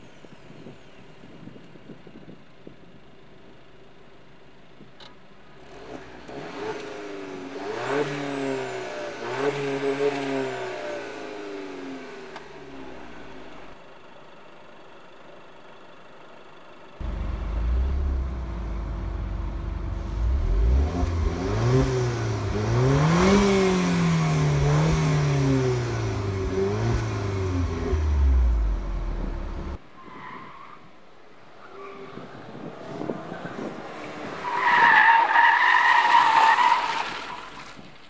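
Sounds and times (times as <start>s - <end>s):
car engine revving: 5.6s - 12.3s, 17.0s - 29.8s.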